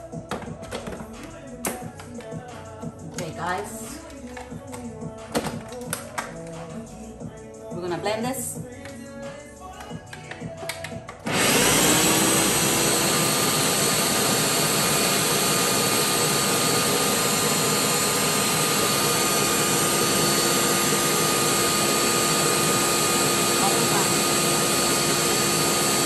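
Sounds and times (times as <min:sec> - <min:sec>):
blender motor whirring: 0:11.2 - 0:26.0.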